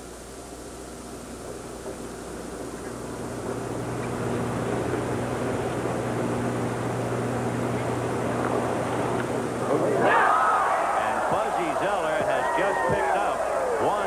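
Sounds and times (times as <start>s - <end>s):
aircraft engine drone overhead: 3.1s - 14.0s.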